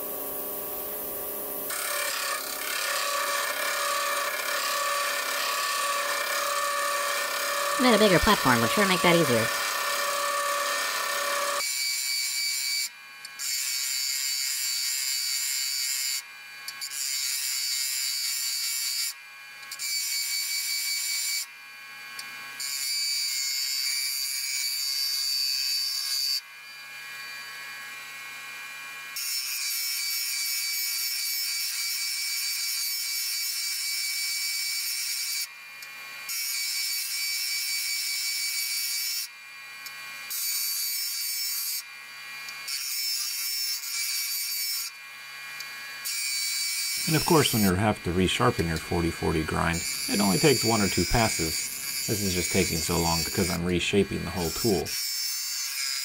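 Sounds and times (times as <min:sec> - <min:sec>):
grinder motor hum: 0:00.0 - 0:11.6, 0:47.0 - 0:55.0.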